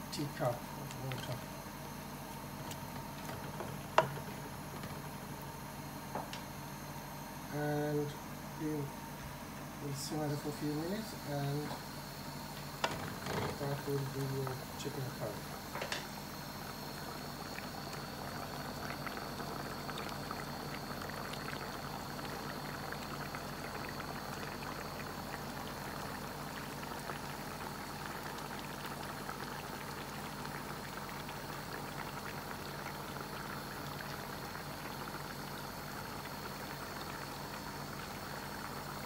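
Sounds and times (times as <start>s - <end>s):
curry simmering with bubbles popping: 11.8s - 39.0s.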